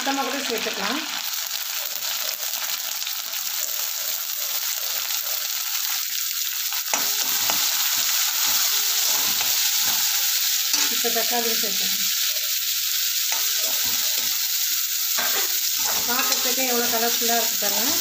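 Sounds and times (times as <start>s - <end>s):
vegetables sizzling in hot oil: 0.0s - 18.0s
metal spoon scraping pan: 6.9s - 11.6s, 13.3s - 17.3s.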